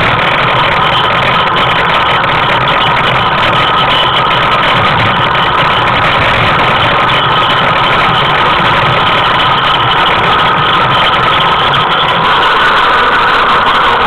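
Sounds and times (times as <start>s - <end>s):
tricycle rumbling over asphalt: 0.0s - 14.0s.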